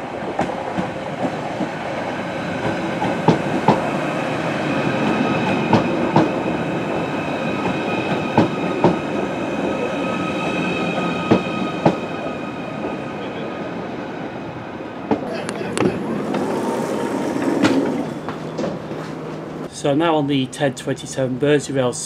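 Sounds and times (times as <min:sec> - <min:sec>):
train high whine: 0:00.0 - 0:19.9
train rumble: 0:00.0 - 0:19.9
wheels clicking over rail joints: 0:15.1 - 0:19.7.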